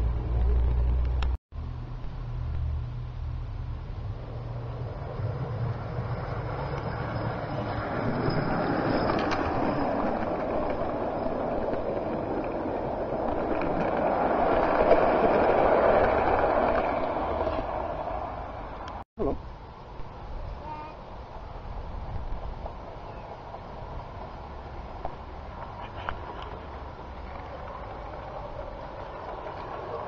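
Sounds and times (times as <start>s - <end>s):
model train wheels on track: 4.7s - 19.0s, 21.8s - 30.0s.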